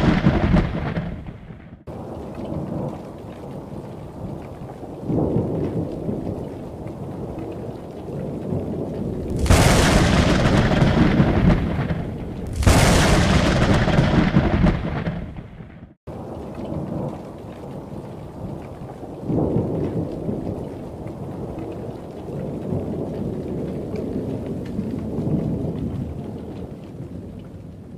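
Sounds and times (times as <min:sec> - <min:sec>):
loud thunder cracks: 0:00.0 - 0:01.9, 0:09.2 - 0:16.0
rain falling: 0:00.0 - 0:27.9
thunder rumbling: 0:00.0 - 0:27.9.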